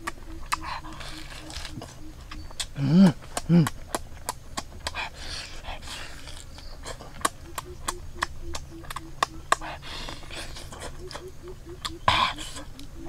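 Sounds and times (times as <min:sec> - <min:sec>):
person chewing: 0:00.0 - 0:13.0
wet mouth clicks and smacks: 0:00.0 - 0:13.0
person breathing: 0:04.8 - 0:06.6, 0:09.5 - 0:11.0.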